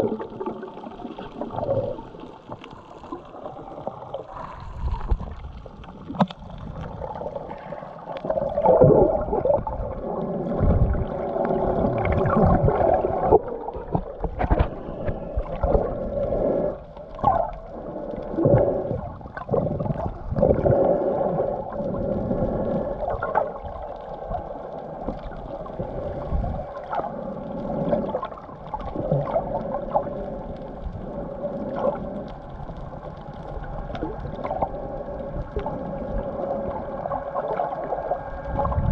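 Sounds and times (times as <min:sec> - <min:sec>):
faint steady hum: 0:00.0 - 0:38.9
water sloshing and gurgling: 0:00.0 - 0:38.9.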